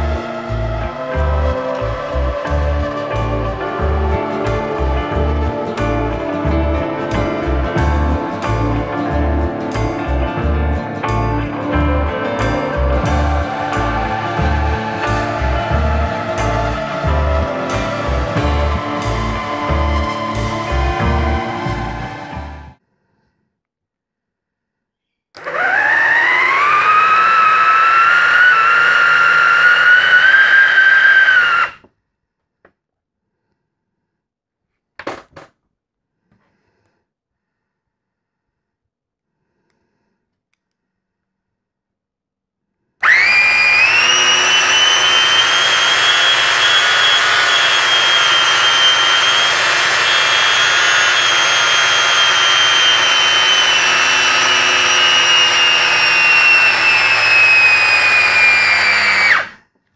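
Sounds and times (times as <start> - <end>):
small electric motor whining: 25.4 - 31.8, 43.0 - 59.6.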